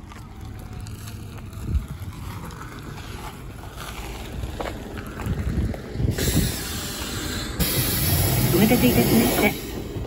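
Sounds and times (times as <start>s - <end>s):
bus cabin rumble: 0.0s - 10.0s.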